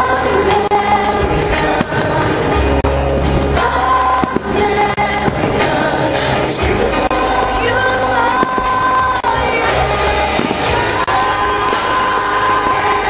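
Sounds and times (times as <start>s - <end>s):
music with singing voice: 0.0s - 13.0s
firework bangs: 0.3s - 13.0s.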